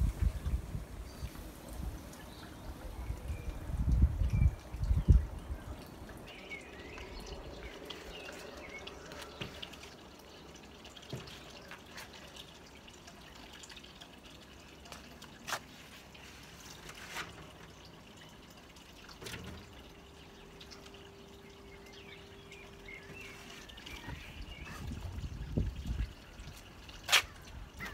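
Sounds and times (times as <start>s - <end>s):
water feature trickling and dripping: 0.0s - 27.9s
birds chirping: 0.2s - 13.7s, 19.7s - 27.9s.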